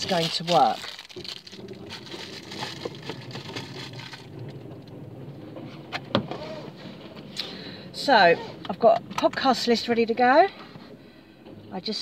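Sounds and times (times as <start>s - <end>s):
crackly rustling handling noise: 0.0s - 7.3s.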